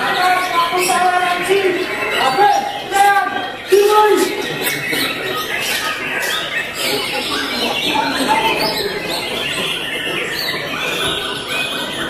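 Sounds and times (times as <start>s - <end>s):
birds singing: 0.0s - 12.0s.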